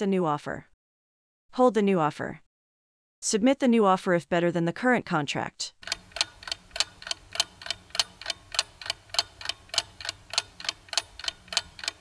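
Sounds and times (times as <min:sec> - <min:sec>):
clock ticking: 0:05.8 - 0:12.0.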